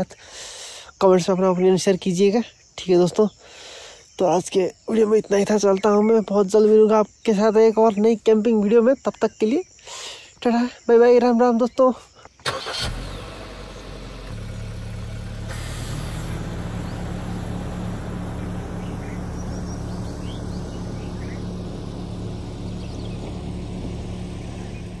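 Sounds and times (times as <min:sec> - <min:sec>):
car engine at low revs: 0:12.6 - 0:25.0.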